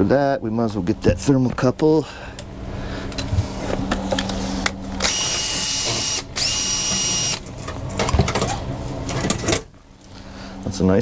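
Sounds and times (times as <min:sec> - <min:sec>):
power drill whining: 0:05.0 - 0:07.5.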